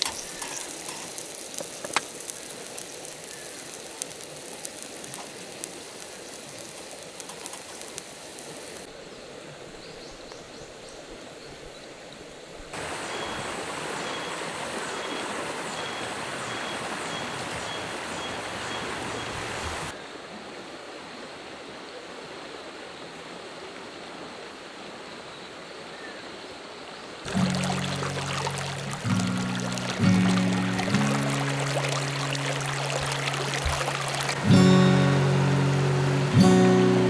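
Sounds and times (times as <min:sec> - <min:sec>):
river flowing over stones: 0:00.0 - 0:09.8, 0:12.1 - 0:21.6, 0:27.2 - 0:37.0.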